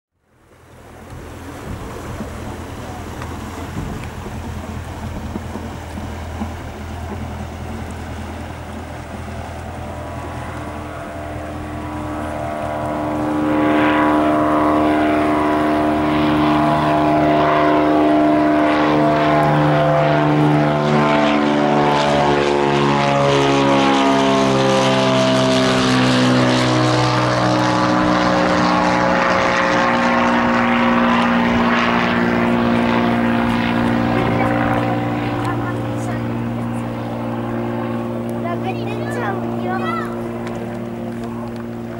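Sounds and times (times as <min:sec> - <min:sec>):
propeller plane droning overhead: 0:00.1 - 0:41.9.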